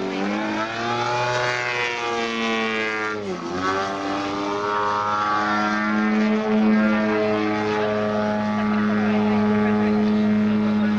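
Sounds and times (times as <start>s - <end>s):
model aircraft engine at high power: 0.0s - 10.9s.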